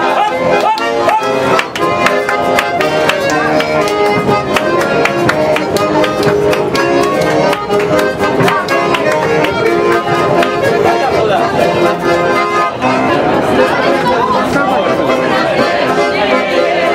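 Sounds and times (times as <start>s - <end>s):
people clapping along: 0.0s - 12.5s
accordion playing: 0.0s - 16.9s.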